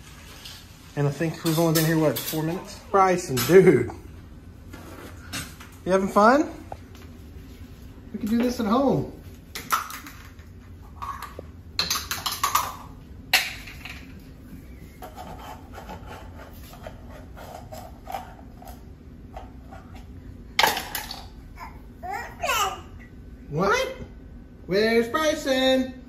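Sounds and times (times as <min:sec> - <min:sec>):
plastic cups knocking on tile floor: 0:09.5 - 0:14.1, 0:20.6 - 0:21.3.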